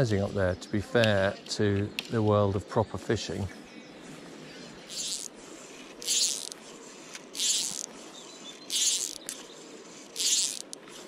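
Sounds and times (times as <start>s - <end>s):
fly line rasping through rod guides: 4.6s - 11.0s.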